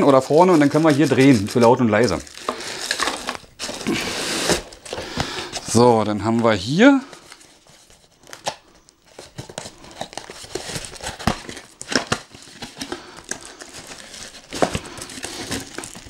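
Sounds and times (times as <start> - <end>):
cardboard crinkling and scraping: 0.0 - 16.0.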